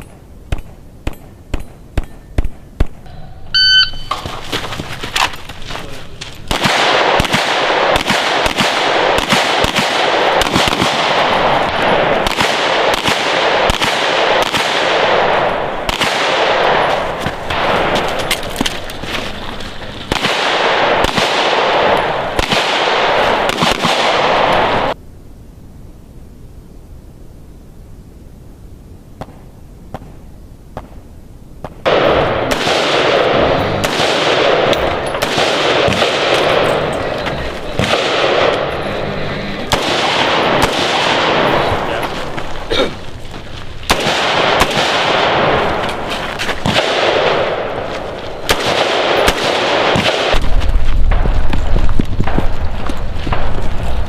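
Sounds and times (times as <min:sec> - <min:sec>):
gunshots with echo: 0:06.5 - 0:18.7, 0:20.1 - 0:25.0, 0:31.7 - 0:42.5, 0:43.8 - 0:51.6
low rumble: 0:31.9 - 0:49.3, 0:50.4 - 0:54.0.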